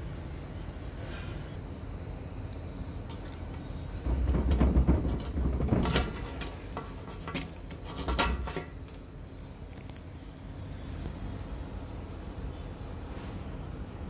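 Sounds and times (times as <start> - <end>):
handling rumble: 3.1 - 9.1.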